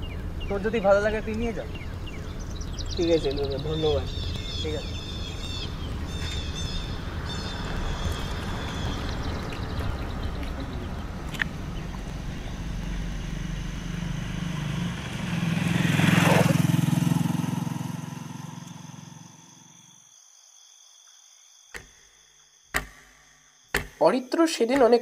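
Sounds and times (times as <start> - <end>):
vehicle engine passing by: 0.0 - 19.6.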